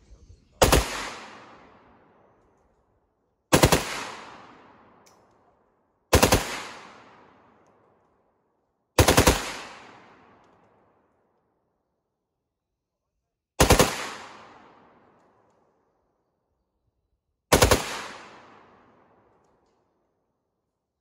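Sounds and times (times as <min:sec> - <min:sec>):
rifle automatic fire bursts: 0:00.6 - 0:01.2, 0:03.5 - 0:04.2, 0:06.1 - 0:06.8, 0:09.0 - 0:09.9, 0:13.6 - 0:14.2, 0:17.5 - 0:18.1.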